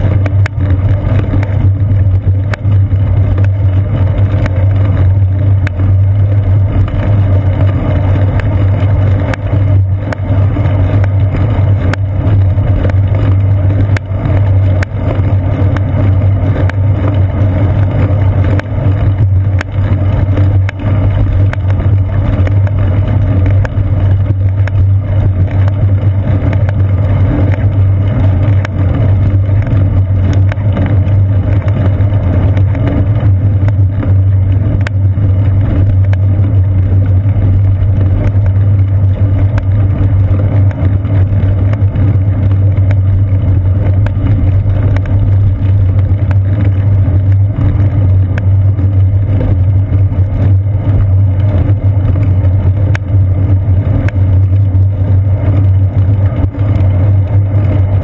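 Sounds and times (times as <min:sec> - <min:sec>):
bicycle rolling over pavement: 0:00.0 - 0:58.0.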